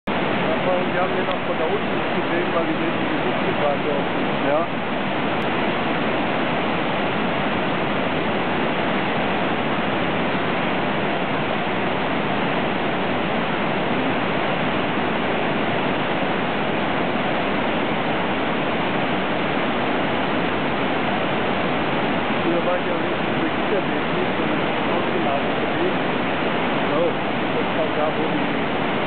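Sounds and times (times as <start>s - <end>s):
rush of falling water: 0.1s - 29.0s.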